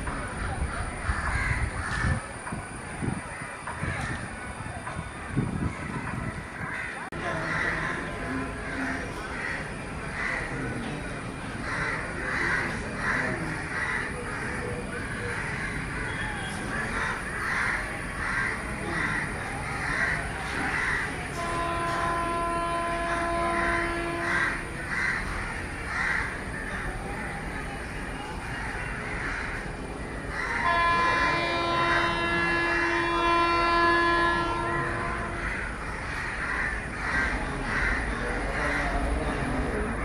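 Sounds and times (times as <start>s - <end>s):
crows cawing: 0.3s - 2.3s, 3.3s - 4.5s, 5.1s - 10.8s, 11.5s - 40.0s
locomotive horn blast: 20.5s - 24.9s, 30.6s - 35.8s.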